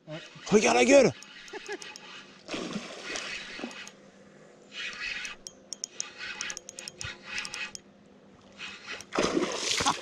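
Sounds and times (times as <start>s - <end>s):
fishing reel cranking: 0.6s - 2.4s, 3.1s - 4.0s, 4.7s - 7.8s.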